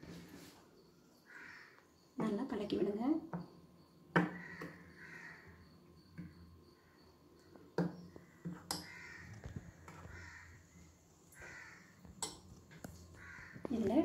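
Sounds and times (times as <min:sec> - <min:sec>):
faint hoarse calls: 0:08.2 - 0:12.2.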